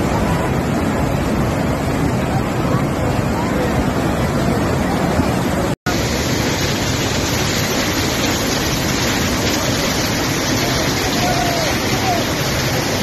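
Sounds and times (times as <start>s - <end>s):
floodwater rushing: 0.0s - 13.0s.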